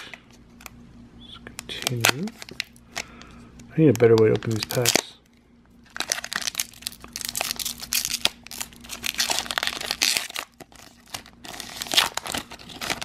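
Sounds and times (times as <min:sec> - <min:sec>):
foil wrapper crinkling and tearing: 0:01.6 - 0:03.2, 0:03.9 - 0:05.2, 0:05.8 - 0:13.0.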